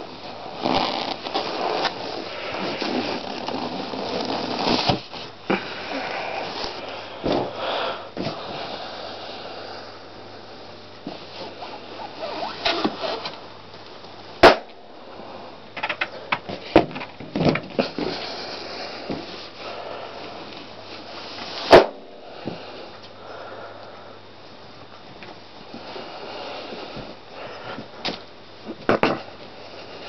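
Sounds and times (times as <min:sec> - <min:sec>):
rubbery rustles and knocks: 0:00.2 - 0:05.4, 0:11.0 - 0:13.4
balloons popping: 0:11.0 - 0:13.3.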